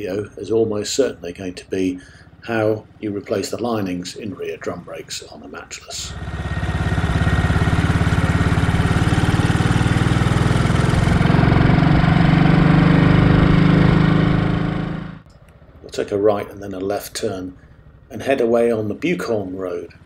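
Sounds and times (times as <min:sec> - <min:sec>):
motorcycle engine running: 0:05.9 - 0:16.3.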